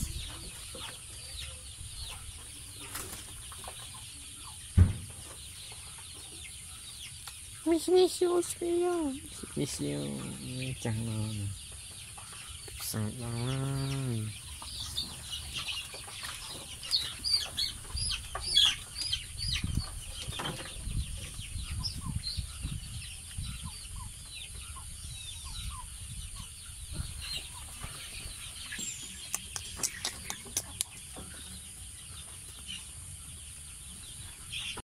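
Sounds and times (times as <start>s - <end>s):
chickens peeping and clucking: 0.0s - 34.8s
sharp clicks: 29.2s - 31.0s.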